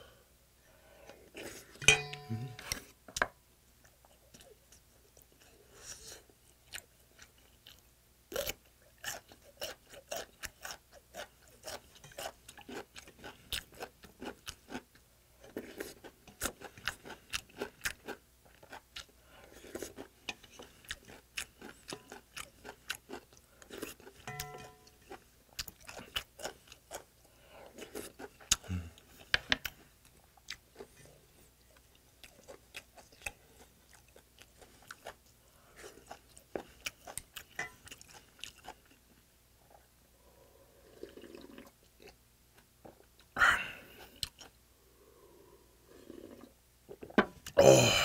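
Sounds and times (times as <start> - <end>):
person chewing: 3.8 - 39.1, 42.9 - 44.6.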